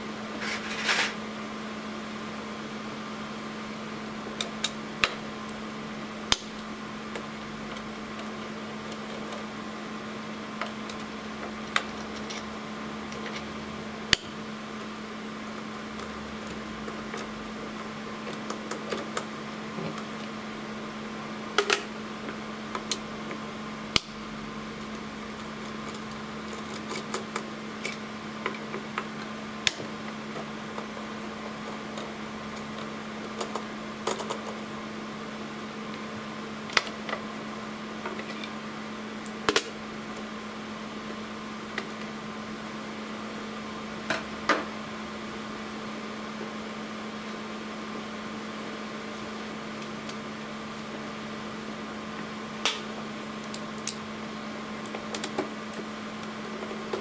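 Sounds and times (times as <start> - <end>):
steady hum: 0.0 - 57.0.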